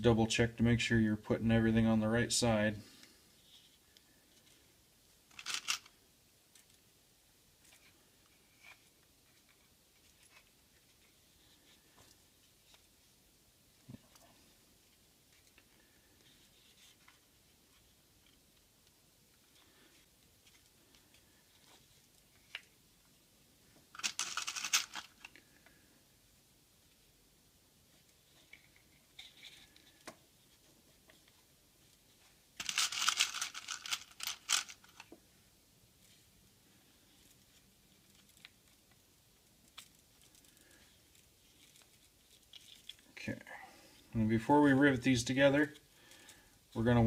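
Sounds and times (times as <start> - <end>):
crinkling handling noise: 2.8 - 6.9, 7.6 - 13.1, 13.7 - 26.0, 27.8 - 35.4, 36.0 - 44.2.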